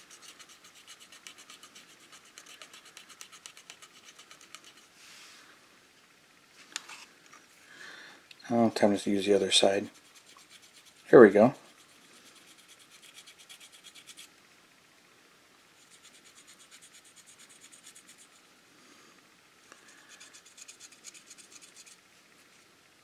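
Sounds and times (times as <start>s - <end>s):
cotton swab scrubbing plastic: 0.0s - 4.9s, 9.8s - 11.1s, 11.7s - 14.3s.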